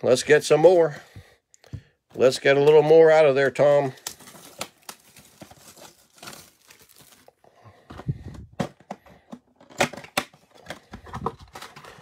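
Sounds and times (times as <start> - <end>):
cardboard tearing and crinkling: 4.0 - 7.4.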